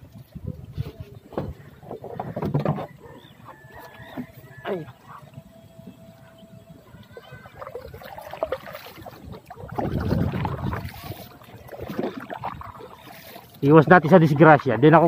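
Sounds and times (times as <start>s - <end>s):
water sloshing and swirling: 0.0s - 15.0s
small knocks and rustles: 0.8s - 3.0s.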